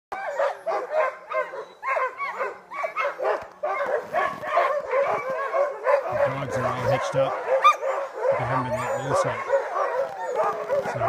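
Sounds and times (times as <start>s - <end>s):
sled dogs barking: 0.1s - 11.0s.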